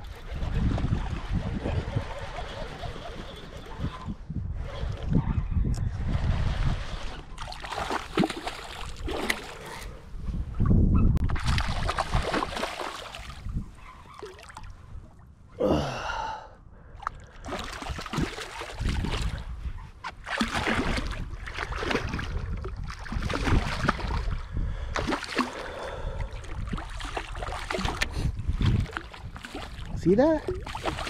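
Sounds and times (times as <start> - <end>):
person gasping: 15.6 - 17.5.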